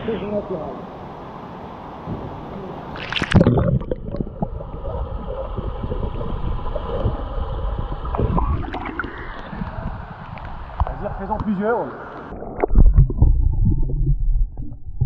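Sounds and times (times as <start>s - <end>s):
water splashing: 2.8s - 11.3s, 12.2s - 15.0s
underwater bubbling and gurgling: 3.0s - 11.0s, 12.2s - 15.0s.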